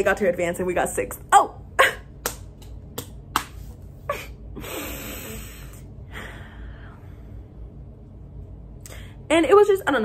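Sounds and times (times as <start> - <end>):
low room hum: 0.0 - 10.0
woman laughing softly: 4.0 - 6.4.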